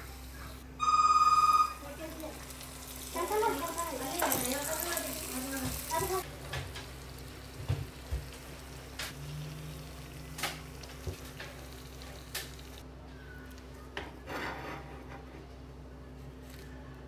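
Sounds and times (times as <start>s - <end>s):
oil sizzling: 0.0s - 12.8s.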